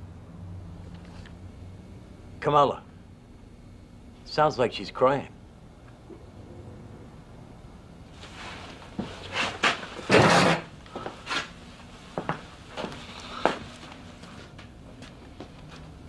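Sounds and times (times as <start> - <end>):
chair scraping: 8.2 - 11.5.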